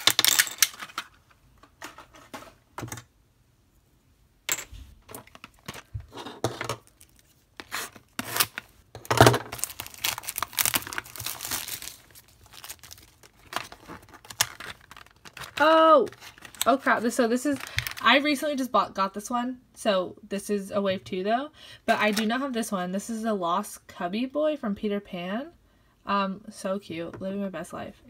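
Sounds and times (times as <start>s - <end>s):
plastic wrapping tearing and crinkling: 0.0s - 1.1s, 6.8s - 16.8s, 17.6s - 18.0s.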